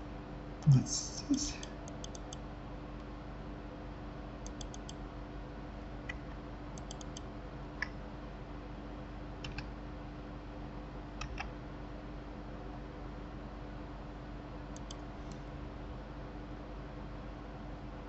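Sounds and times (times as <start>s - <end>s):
steady low hum: 0.0s - 18.0s
keyboard and mouse clicking: 1.9s - 2.4s, 4.4s - 5.0s, 6.1s - 8.0s, 9.4s - 9.7s, 11.2s - 11.5s, 14.8s - 15.4s.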